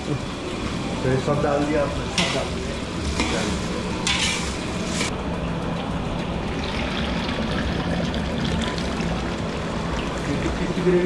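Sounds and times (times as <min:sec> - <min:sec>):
spatula scraping sizzling pan: 0:02.2 - 0:05.1.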